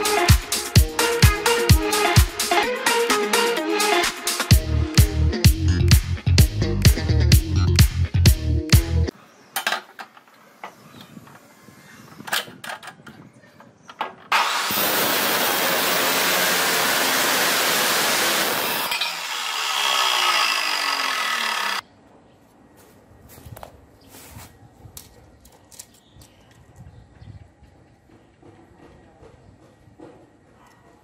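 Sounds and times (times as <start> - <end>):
chop saw grinding steel: 14.3 - 21.8.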